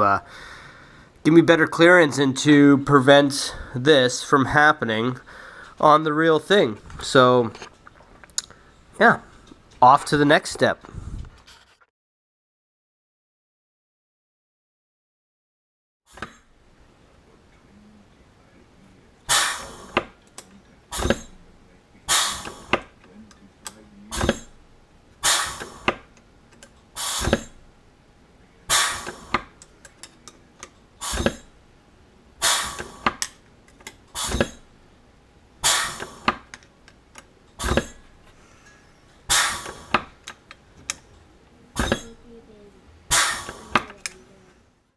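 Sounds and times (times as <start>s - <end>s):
pneumatic squeezer clunk and hiss: 16.1s - 16.4s, 19.3s - 20.2s, 20.9s - 21.4s, 22.1s - 23.0s, 24.1s - 24.6s, 25.2s - 26.1s, 27.0s - 27.6s, 28.7s - 29.6s, 31.0s - 31.5s, 32.4s - 33.2s, 33.9s - 34.7s, 35.6s - 36.6s, 37.6s - 40.2s, 41.8s - 42.2s, 43.1s - 44.0s.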